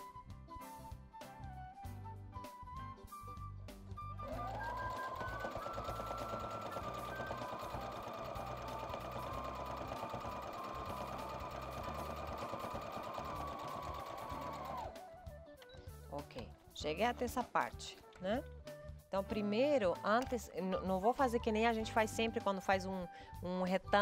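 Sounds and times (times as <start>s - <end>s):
sewing machine running: 4.2s - 15.0s.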